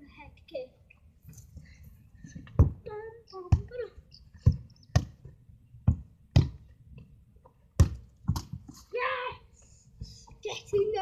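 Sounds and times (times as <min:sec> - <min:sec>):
child's voice: 0:00.0 - 0:00.8, 0:02.8 - 0:04.0, 0:08.9 - 0:09.5, 0:10.3 - 0:11.0
football thudding: 0:02.4 - 0:02.9, 0:03.5 - 0:03.8, 0:04.4 - 0:06.7, 0:07.7 - 0:08.8.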